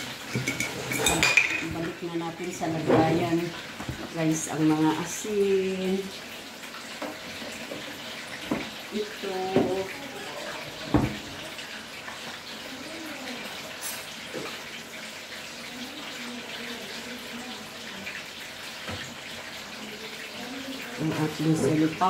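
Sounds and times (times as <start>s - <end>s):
oil sizzling in a frying pan: 0.0s - 22.0s.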